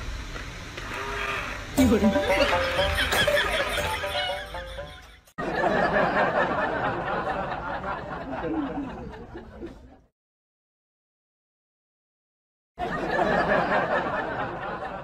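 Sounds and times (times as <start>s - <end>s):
laughter-like voices: 1.8s - 10.1s, 12.8s - 15.0s.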